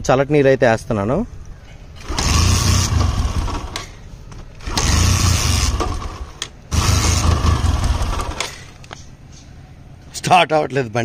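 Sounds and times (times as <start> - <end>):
motorcycle electric starter cranking: 2.0 - 4.0, 4.6 - 8.9.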